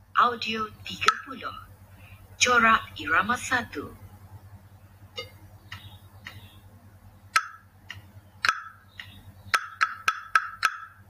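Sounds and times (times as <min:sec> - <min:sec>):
soft clicks keeping the beat: 0:01.0 - 0:01.3, 0:05.2 - 0:06.6, 0:07.3 - 0:11.0
wooden block knocks: 0:09.5 - 0:11.0.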